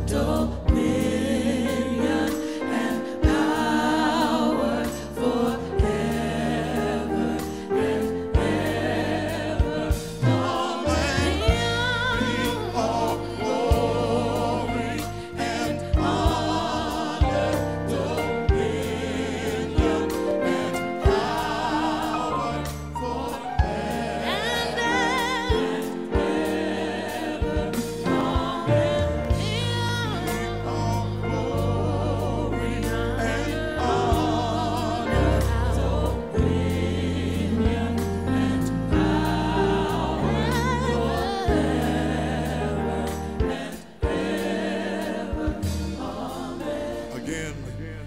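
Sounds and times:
bass: 0.0s - 48.0s
choir singing gospel song: 0.0s - 48.0s
steady drum beat: 8.0s - 38.2s
band playing: 8.4s - 35.0s.

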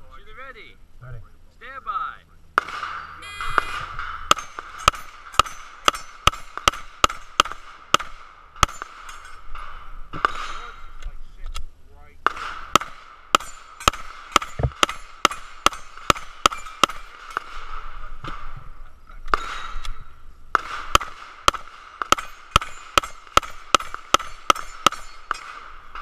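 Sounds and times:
steel targets ringing: 2.6s - 7.6s, 8.6s - 11.0s, 12.8s - 17.5s, 19.3s - 20.2s, 22.0s - 26.0s
rapid pistol fire: 3.7s - 9.0s, 12.2s - 17.8s, 20.5s - 26.0s.

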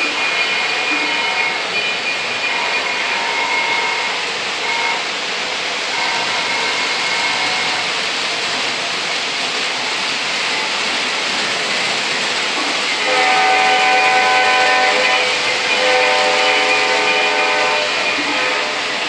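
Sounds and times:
multi-tone train horn blasts: 0.0s - 5.1s, 5.9s - 7.9s, 12.9s - 19.0s
model trains rolling on track: 0.0s - 19.0s.

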